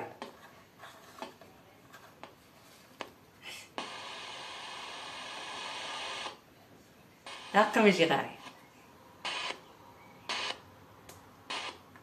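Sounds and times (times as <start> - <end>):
radio static hiss: 3.5 - 6.6, 7.2 - 10.7, 11.4 - 12.0.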